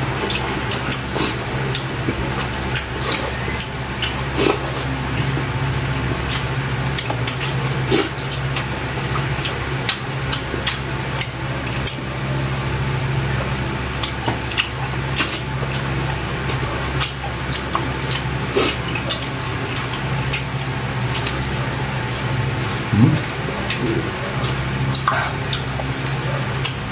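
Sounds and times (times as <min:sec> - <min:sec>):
steady low hum: 0:00.0 - 0:26.9
wet chewing and lip smacks: 0:00.1 - 0:05.4, 0:06.3 - 0:12.0, 0:13.9 - 0:26.8
sticky finger sounds: 0:22.8 - 0:23.9.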